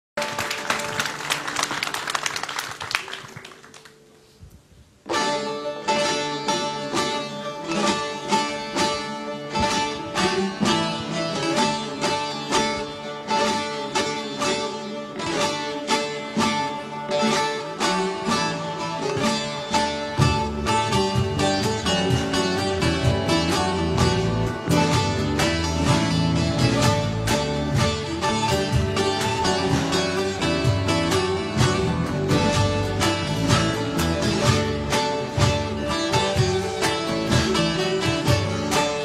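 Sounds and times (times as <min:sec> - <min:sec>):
audience applause: 0:00.2 - 0:04.1
plucked long-necked lutes playing: 0:05.0 - 0:39.0.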